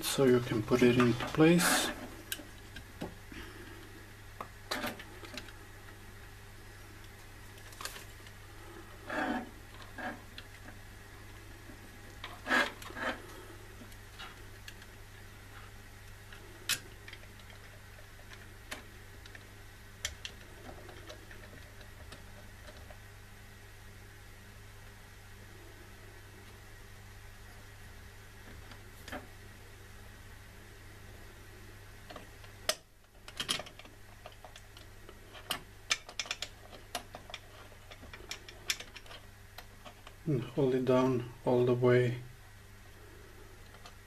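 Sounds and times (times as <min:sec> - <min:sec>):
steady low hum: 0:00.0 - 0:44.0
metal and plastic parts clicking: 0:32.1 - 0:40.2.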